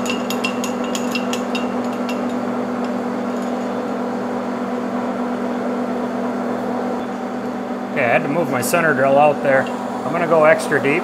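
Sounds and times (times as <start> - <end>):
lathe humming: 0.0 - 11.0.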